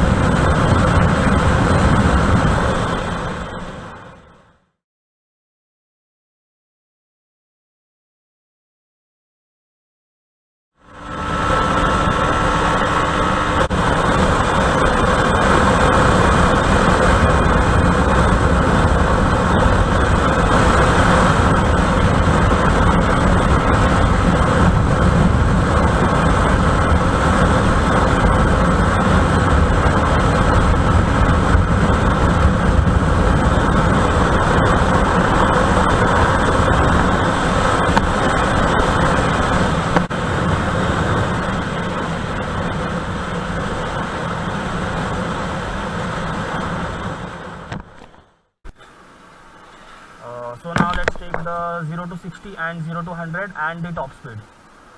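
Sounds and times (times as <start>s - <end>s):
wind rushing on microphone: 0.0s - 4.5s, 10.9s - 48.2s
motorcycle engine running hard: 0.0s - 4.6s, 10.8s - 48.2s.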